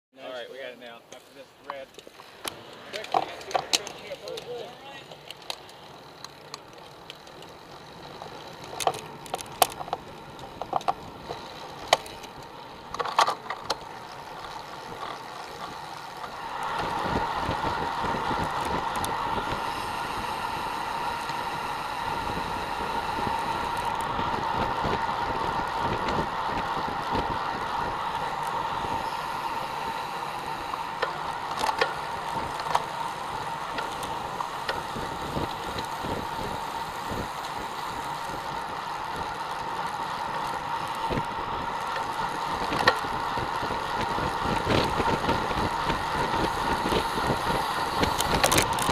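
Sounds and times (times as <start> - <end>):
bicycle clicks and rattles: 1.1 - 48.9
hum: 5.5 - 48.9
tyre and wind rush: 14.8 - 48.9.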